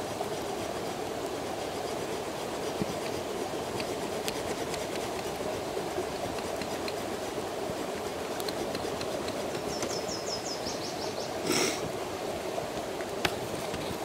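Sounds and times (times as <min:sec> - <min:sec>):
campfire crackling: 0:00.1 - 0:10.2
bird trilling: 0:09.6 - 0:11.4.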